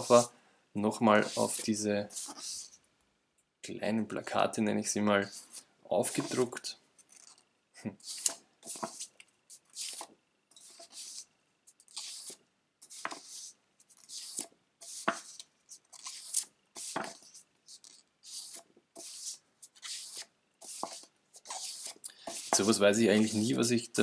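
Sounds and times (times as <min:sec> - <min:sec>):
paper sheets rustling and sliding: 0:06.1 - 0:06.6, 0:11.9 - 0:23.7.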